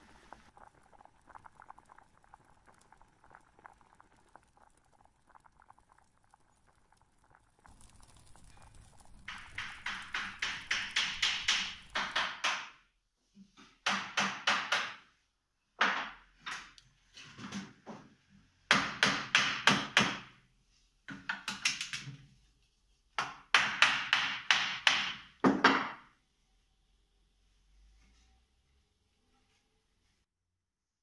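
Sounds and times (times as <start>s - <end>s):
hammer tapping on wood: 9.3s - 12.8s, 23.2s - 26.0s.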